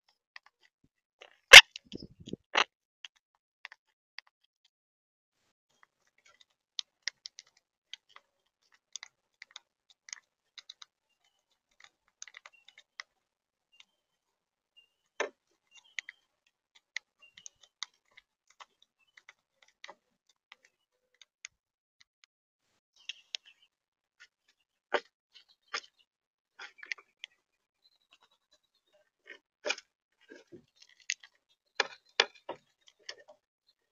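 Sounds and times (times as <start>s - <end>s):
birds pecking and cracking seeds: 5.7s - 14.0s, 14.9s - 21.3s, 23.0s - 33.4s.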